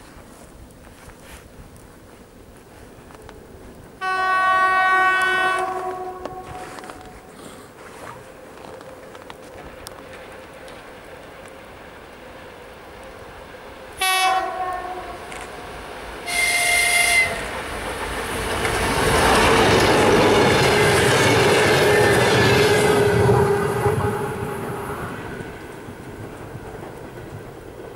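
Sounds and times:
train wheels on rails: 0.0s - 27.9s
locomotive horn blasts: 4.0s - 7.0s, 14.0s - 15.3s, 16.2s - 17.5s.

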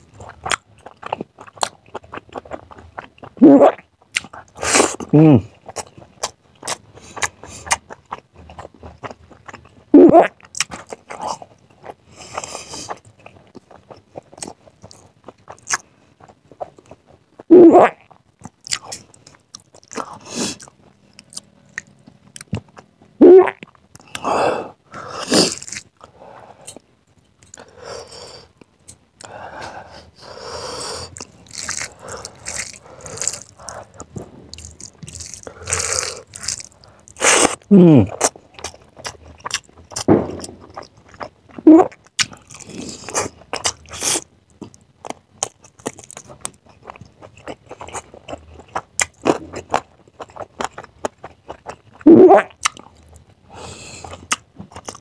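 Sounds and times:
wet smacking and chewing: 0.2s - 3.4s, 4.0s - 24.2s, 31.0s - 53.4s, 54.0s - 55.0s
person humming mm: 5.1s - 5.5s, 37.4s - 38.3s.

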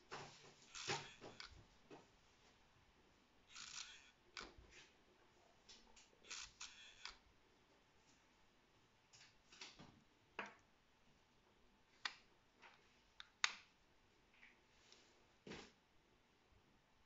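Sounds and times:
sharp mechanical clicks: 3.5s - 4.6s, 6.2s - 7.2s.

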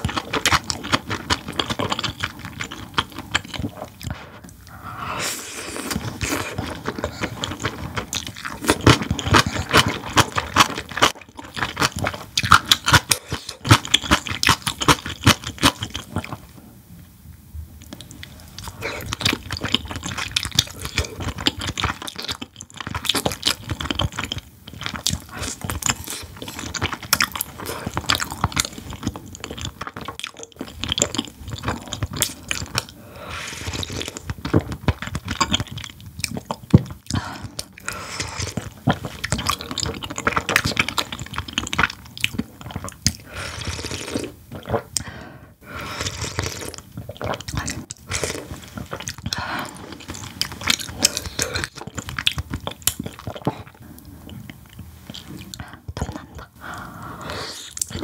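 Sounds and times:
chewing and crunching: 0.0s - 4.2s, 5.8s - 16.5s, 17.8s - 45.0s, 46.0s - 56.5s
wet mouth sounds: 17.8s - 45.1s, 45.8s - 58.0s.

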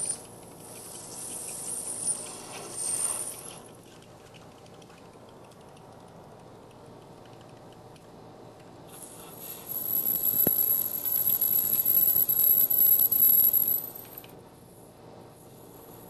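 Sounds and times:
lathe high-pitched ringing: 0.0s - 3.7s, 9.0s - 14.3s.

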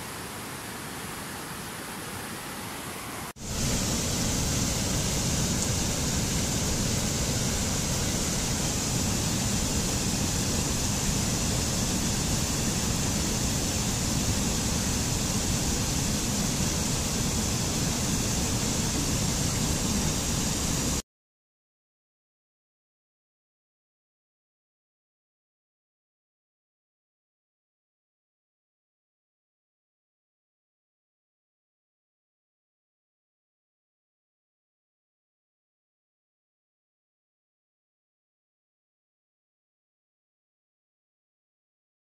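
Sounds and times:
water cascading over rocks: 0.0s - 21.0s.

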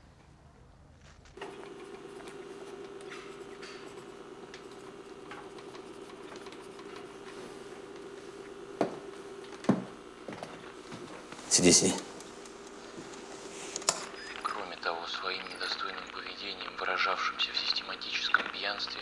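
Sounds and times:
steady low hum: 1.2s - 19.0s
pencil scratching on paper: 1.7s - 8.4s.

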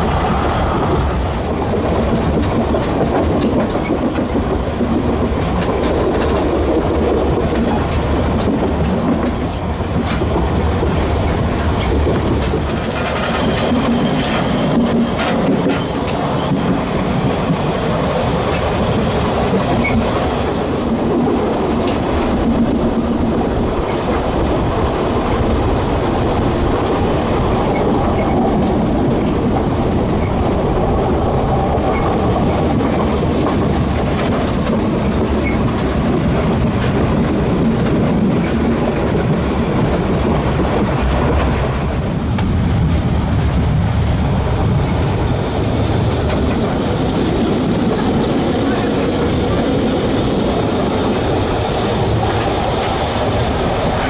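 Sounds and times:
rail joint clicks: 0.0s - 54.0s
train wheels rumbling on rails: 0.0s - 54.0s.

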